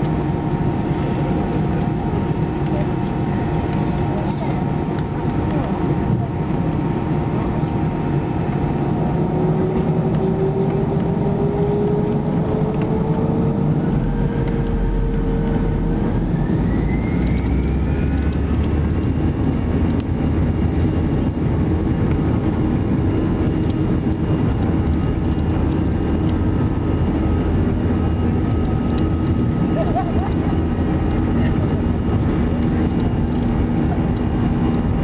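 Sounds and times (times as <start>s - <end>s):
engine and runway rumble: 0.0s - 35.0s
jet engines spooling up with a whine: 0.0s - 35.0s.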